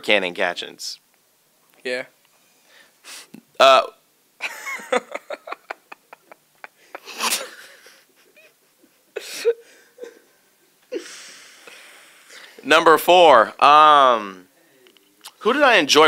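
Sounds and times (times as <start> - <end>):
people laughing hard: 4.4 - 9.5.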